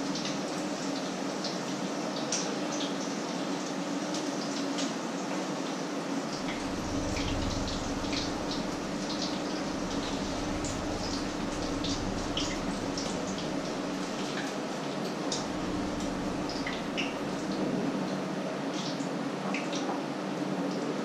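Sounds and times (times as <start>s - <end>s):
low hum: 6.4s - 18.2s.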